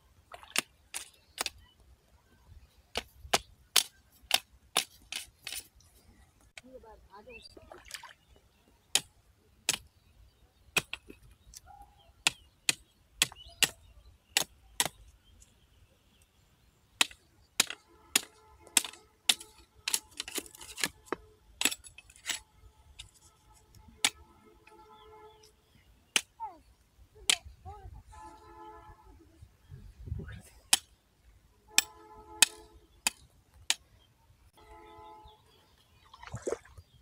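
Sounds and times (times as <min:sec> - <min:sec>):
sickle chopping into dry soil: 0:02.9 - 0:05.6, 0:17.0 - 0:21.0.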